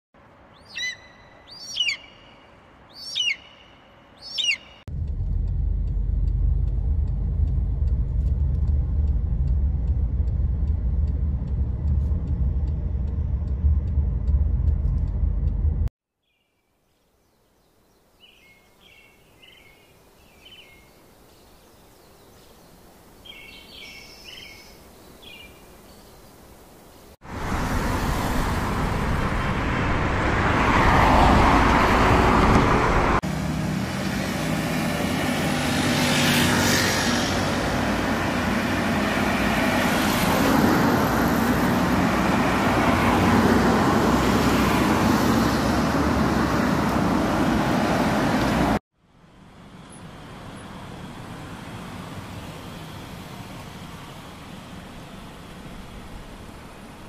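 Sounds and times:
road traffic noise: 0.2s - 15.9s, 18.8s - 57.0s.

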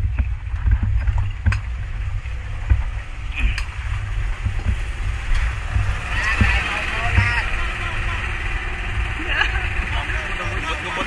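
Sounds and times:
boat low rumble: 0.0s - 11.0s.

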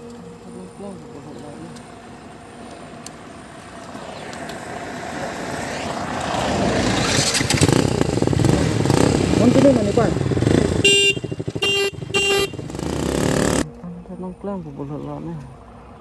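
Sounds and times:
van passing by: 0.0s - 16.0s.

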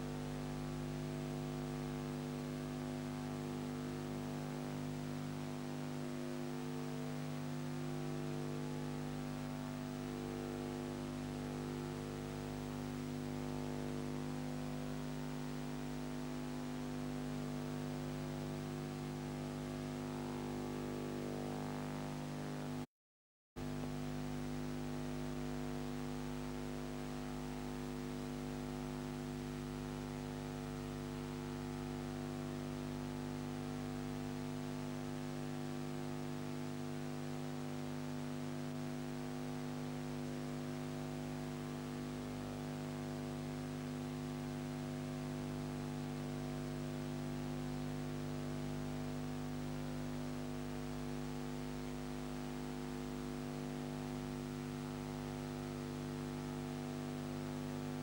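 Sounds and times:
electrical hum: 0.0s - 22.7s.

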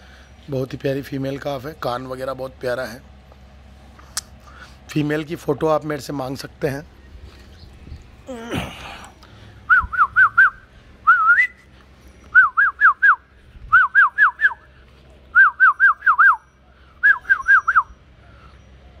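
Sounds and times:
person whistling: 9.7s - 11.7s, 12.3s - 14.6s, 15.4s - 17.9s.

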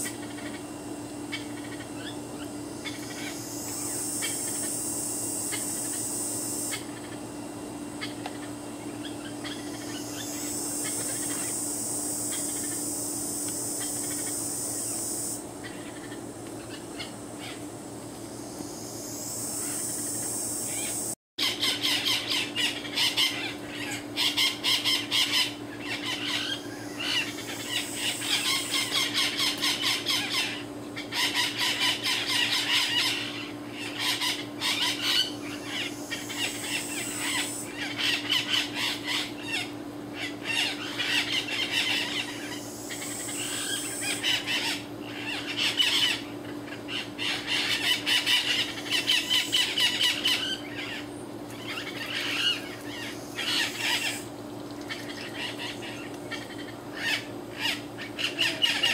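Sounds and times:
parrots squawking shrilly: 46.9s - 51.0s, 51.6s - 54.3s, 54.9s - 58.9s.

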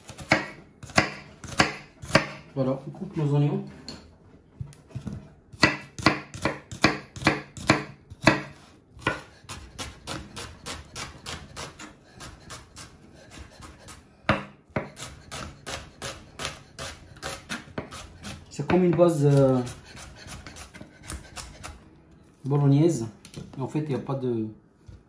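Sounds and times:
knife chopping on wooden board: 0.0s - 2.5s, 5.0s - 21.8s.

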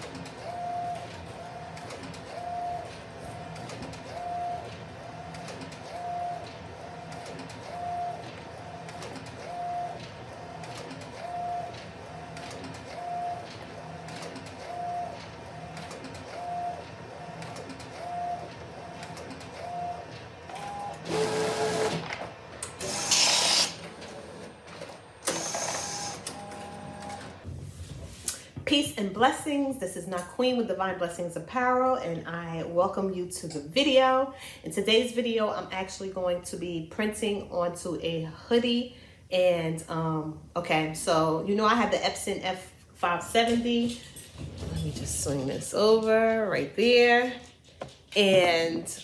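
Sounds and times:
printer carriage whine: 0.0s - 27.5s
printer mechanical hum: 0.0s - 27.5s.

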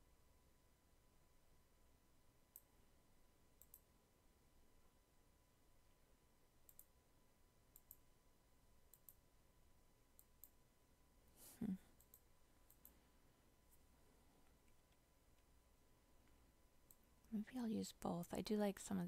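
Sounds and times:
computer mouse clicks: 3.6s - 3.9s, 6.6s - 6.9s, 7.7s - 8.1s, 8.9s - 9.2s, 10.2s - 10.6s, 12.0s - 13.0s, 16.2s - 17.1s.

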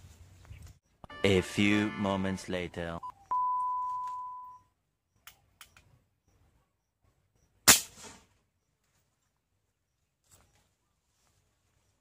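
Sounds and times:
electronic beep: 3.0s - 4.7s
air gun shot: 7.7s - 8.3s.

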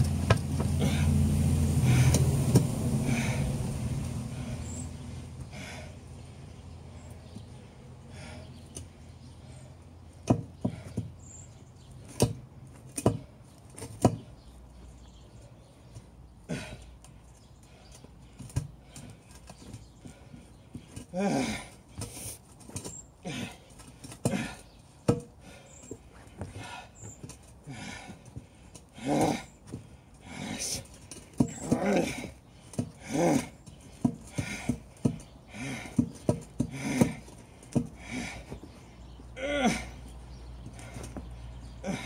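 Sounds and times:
boots stamping on tyre: 0.0s - 1.1s, 10.2s - 14.5s, 17.7s - 39.8s.

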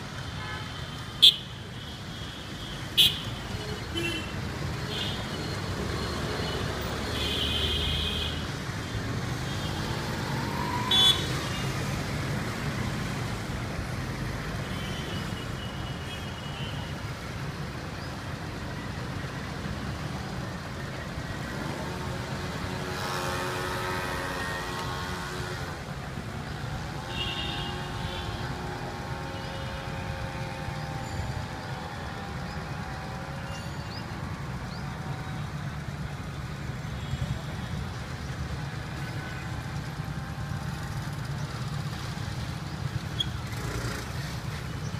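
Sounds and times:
vehicles running in traffic: 0.0s - 44.9s
longer pitched horn tones: 21.6s - 25.8s.

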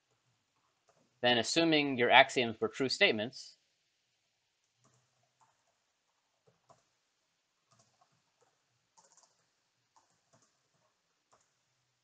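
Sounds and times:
faint keyboard typing: 0.0s - 1.2s, 4.6s - 7.0s, 7.6s - 11.7s.

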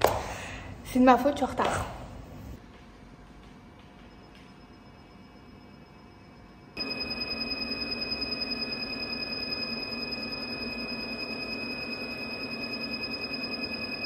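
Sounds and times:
high-pitched machine tone: 4.0s - 14.0s.

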